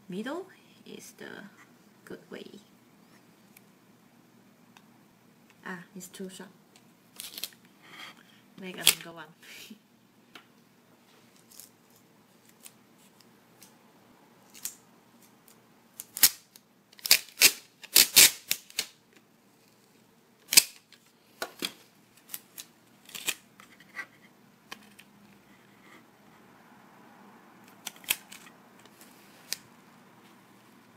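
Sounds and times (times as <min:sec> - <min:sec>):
sticky tape ripping: 0:07.1 - 0:07.6, 0:15.4 - 0:19.0, 0:20.5 - 0:20.9, 0:22.2 - 0:23.4, 0:27.8 - 0:28.5.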